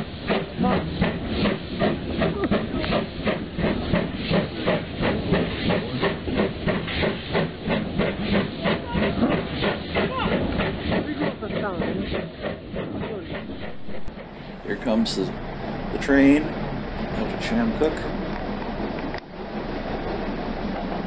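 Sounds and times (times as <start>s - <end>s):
hissing steam: 0.0s - 18.1s
steam locomotive chuffing: 0.0s - 21.0s
faint voices murmuring: 13.0s - 18.1s.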